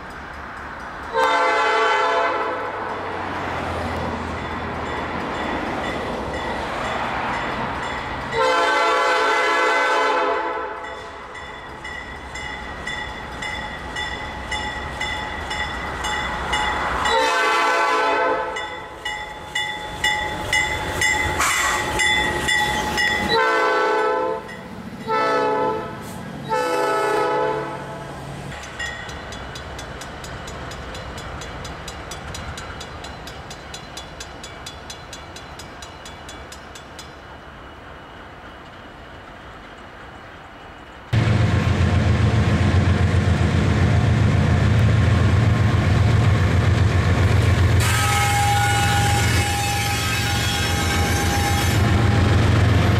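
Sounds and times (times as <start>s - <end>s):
train rumbling on rails: 0.0s - 52.9s
train air horn blasts: 1.1s - 2.8s, 8.3s - 10.9s, 17.0s - 18.6s, 21.4s - 22.0s, 23.2s - 28.1s, 47.7s - 52.4s.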